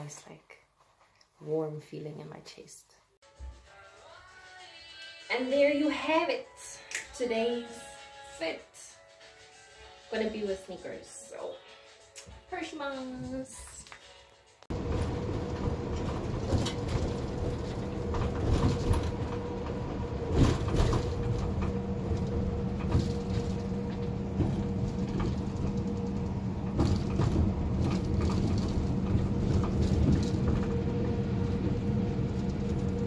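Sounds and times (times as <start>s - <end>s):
bus engine hum: 14.7s - 33.0s
road noise: 14.7s - 33.0s.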